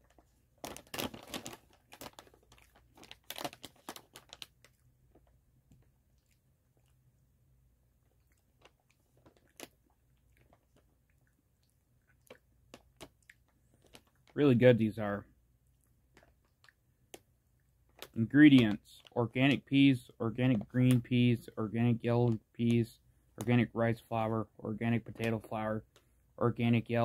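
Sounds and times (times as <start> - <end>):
chewing crunchy chips: 0.0 - 7.2, 8.0 - 14.4.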